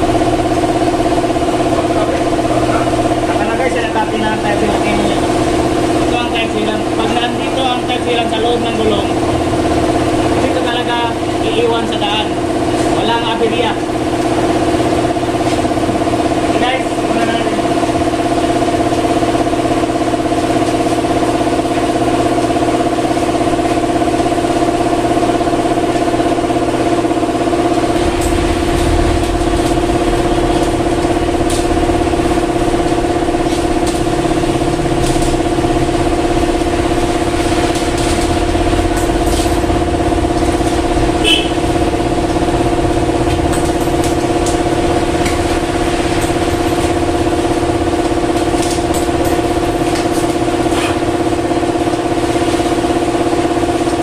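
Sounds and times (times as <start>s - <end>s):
steady mechanical hum: 0.0s - 54.0s
plastic wrapping crackling: 27.8s - 53.2s.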